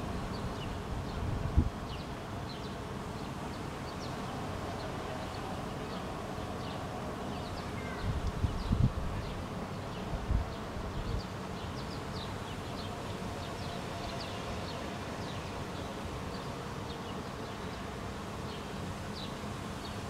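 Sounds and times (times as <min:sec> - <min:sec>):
wind bumps on microphone: 0:08.0 - 0:09.3.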